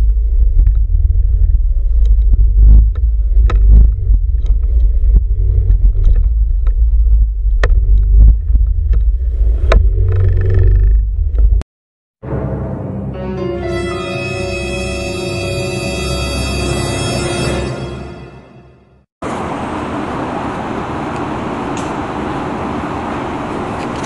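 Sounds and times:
motorcycle engine rumbling: 0.0s - 11.6s
eerie music: 12.2s - 19.1s.

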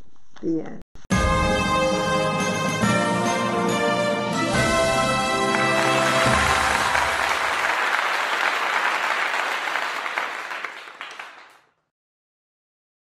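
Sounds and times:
closing theme music: 1.1s - 11.5s
audience applauding: 4.6s - 11.6s.

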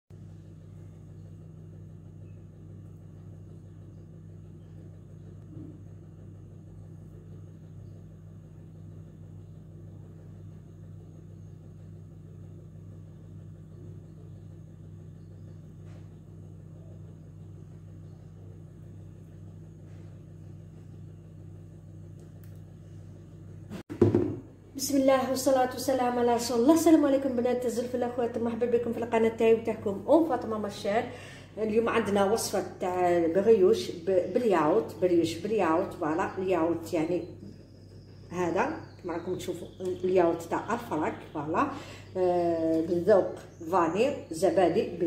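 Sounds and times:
steady low hum: 0.1s - 45.0s.

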